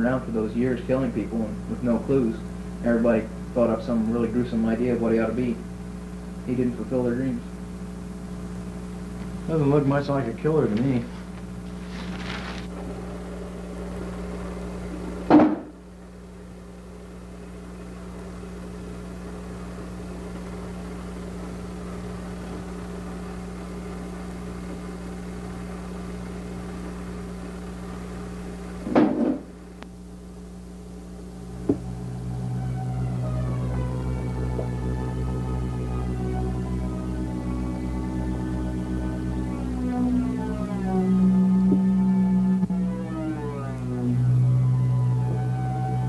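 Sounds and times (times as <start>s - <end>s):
steady low hum: 0.0s - 46.0s
faint sustained tones: 30.4s - 46.0s.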